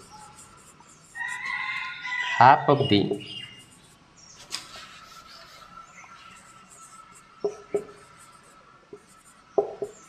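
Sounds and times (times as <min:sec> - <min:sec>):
marker writing on whiteboard: 0:00.0 - 0:10.0
sharp taps on whiteboard: 0:07.4 - 0:08.0, 0:08.9 - 0:10.0.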